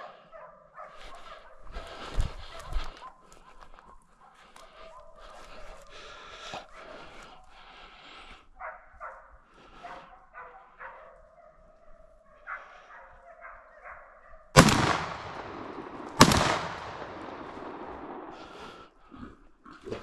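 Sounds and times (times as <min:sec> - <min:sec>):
dog barking: 0:00.0 - 0:05.8, 0:08.5 - 0:14.5
gunshots echoing: 0:14.6 - 0:18.8.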